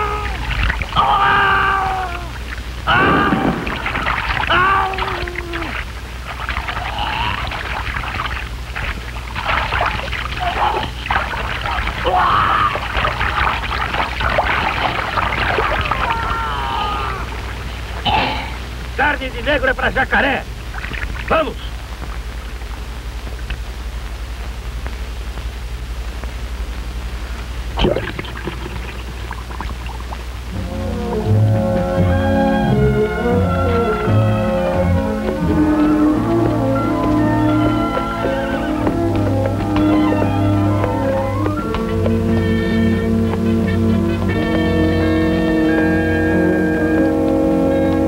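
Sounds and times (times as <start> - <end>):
brief cries: 0.0 - 5.8
water splashing and churning: 0.0 - 18.2, 20.6 - 21.4, 27.8 - 30.4
small crackles: 0.0 - 32.0
steady low hum: 0.0 - 48.0.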